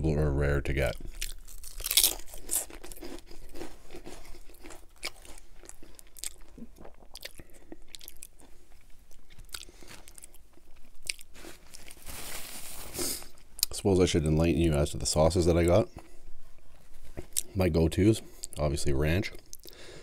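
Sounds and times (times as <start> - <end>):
chewing potato chips: 0.9 - 12.3.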